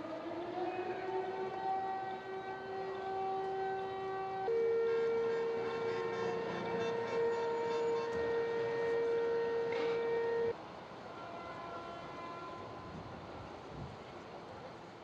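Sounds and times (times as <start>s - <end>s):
faint steady tone: 0.0s - 14.9s
street noise: 0.0s - 15.0s
vehicle horn long blast: 1.7s - 10.5s.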